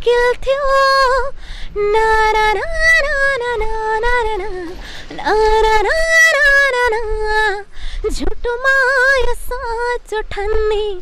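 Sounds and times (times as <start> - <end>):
woman singing unaccompanied: 0.0 - 11.0
breath: 1.4 - 1.8, 4.8 - 5.2, 7.7 - 8.1.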